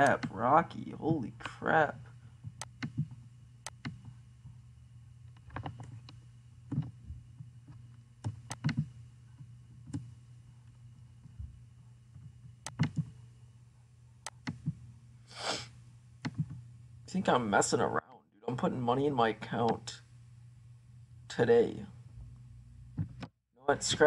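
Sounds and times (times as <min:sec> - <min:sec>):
low steady hum: 0:00.0 - 0:24.0
computer mouse clicking: 0:02.6 - 0:04.1, 0:05.3 - 0:06.9, 0:08.2 - 0:08.9, 0:12.6 - 0:13.2, 0:14.2 - 0:14.8, 0:16.2 - 0:16.6.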